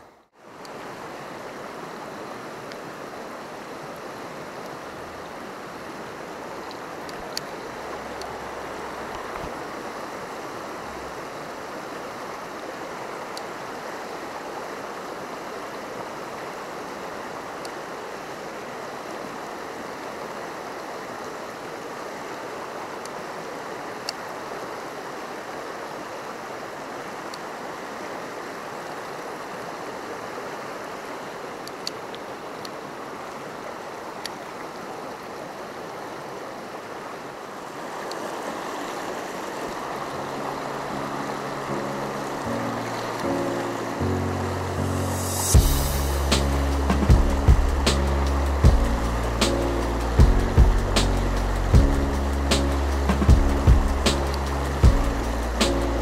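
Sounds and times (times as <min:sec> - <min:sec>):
river rushing over rocks: 0:00.0 - 0:56.0.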